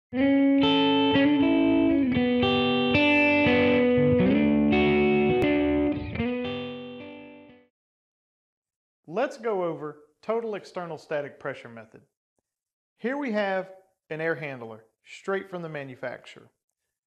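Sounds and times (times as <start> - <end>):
instrumental intro music: 0.1 - 7.7.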